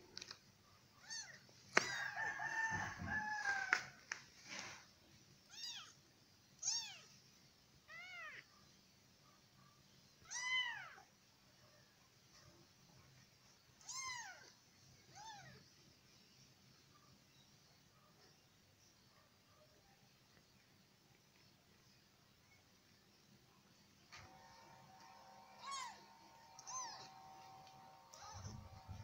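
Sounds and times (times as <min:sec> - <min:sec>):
kitten meowing: 0:13.8 - 0:14.5, 0:28.1 - 0:29.0.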